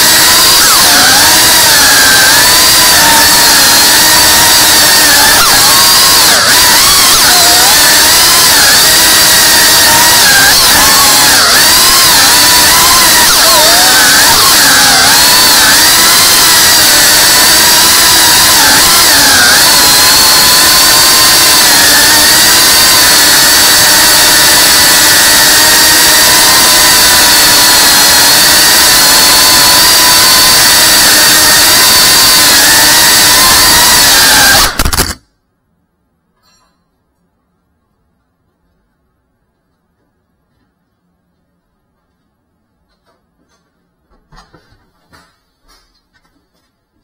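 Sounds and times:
drone motors whining: 0.0 - 35.2.

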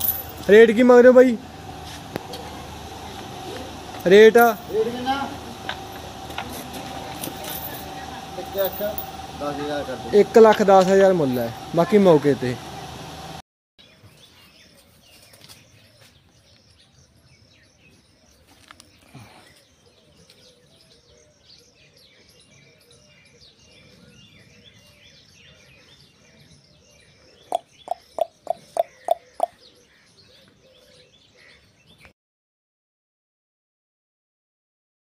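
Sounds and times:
small birds chirping: 13.8 - 32.1
loud sharp bird notes: 27.4 - 29.8.

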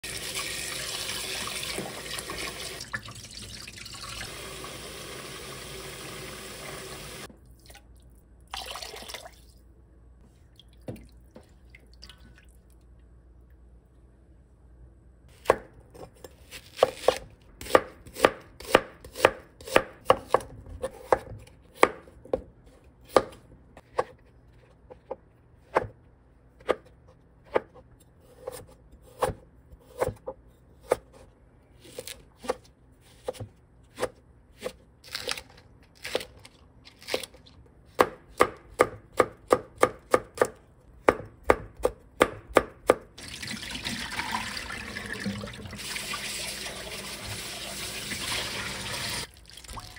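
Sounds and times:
knife chopping vegetables: 15.3 - 35.4, 37.0 - 43.1.

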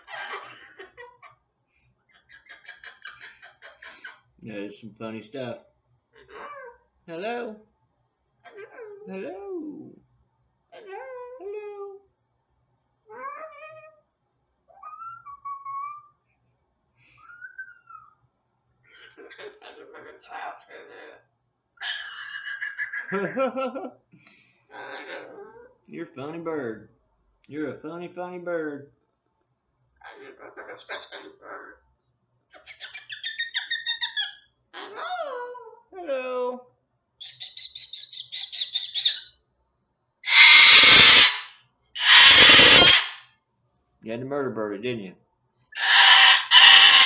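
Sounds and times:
cockatoo babbling chatter: 0.0 - 1.3, 8.5 - 9.5, 18.9 - 21.2, 30.0 - 31.8, 40.3 - 43.2, 45.8 - 47.0
cockatoo loud call: 0.0 - 1.3, 18.9 - 23.3, 40.2 - 43.3, 45.8 - 47.0
cockatoo screeching: 0.0 - 1.3, 2.1 - 4.2, 14.7 - 16.2, 18.9 - 23.2, 24.7 - 25.7, 30.0 - 31.8, 32.6 - 35.7, 37.2 - 39.3, 40.2 - 43.3, 45.8 - 47.0
cockatoo chirping: 0.0 - 1.4, 2.1 - 4.3, 6.2 - 6.8, 13.1 - 14.0, 14.7 - 16.2, 17.1 - 23.4, 30.0 - 31.8, 32.5 - 35.8, 37.2 - 39.4, 40.2 - 43.2, 45.8 - 47.0
laughter: 22.7 - 24.0.

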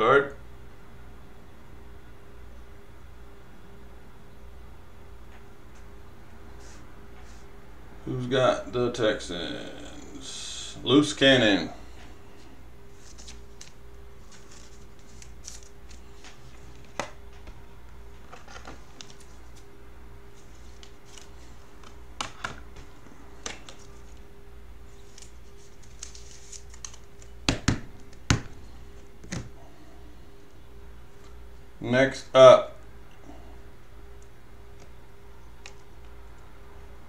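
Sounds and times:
steady low hum: 0.0 - 37.0
trading cards clicking and tapping: 25.1 - 28.6.

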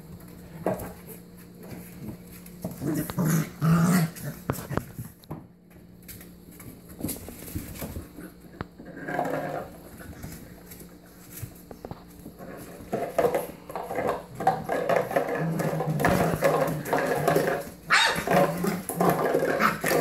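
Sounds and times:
puppies growling and whining: 2.6 - 4.8, 13.6 - 20.0
paws scuffling on floor: 4.0 - 8.4, 9.8 - 13.1.

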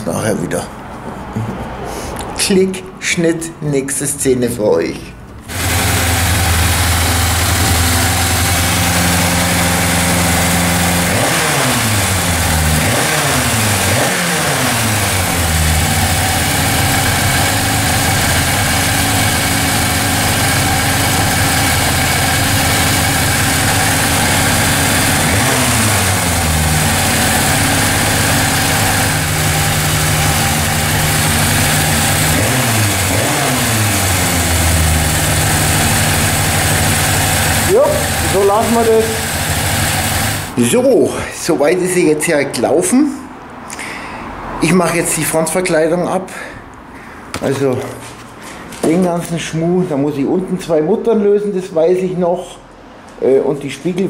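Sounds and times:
motorcycle engine idling: 5.4 - 40.6
engine revving: 5.4 - 40.9.

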